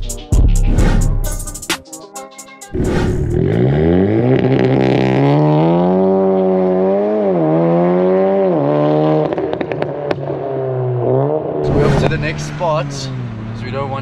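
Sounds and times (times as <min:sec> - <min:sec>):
car engine accelerating hard: 0:02.8 - 0:14.0
exhaust pops: 0:11.7 - 0:13.0.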